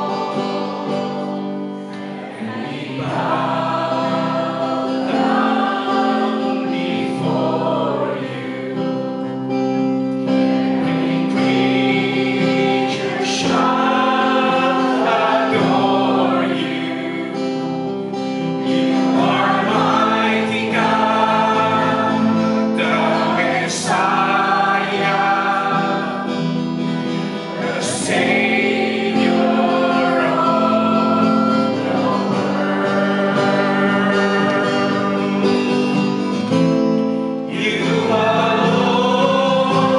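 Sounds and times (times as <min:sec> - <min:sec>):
group singing worship song: 0:00.0 - 0:39.9
instrumental accompaniment: 0:00.0 - 0:39.9.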